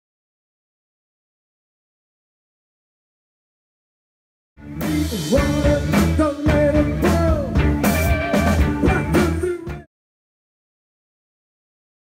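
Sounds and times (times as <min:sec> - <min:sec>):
live rock band playing: 0:04.6 - 0:09.9.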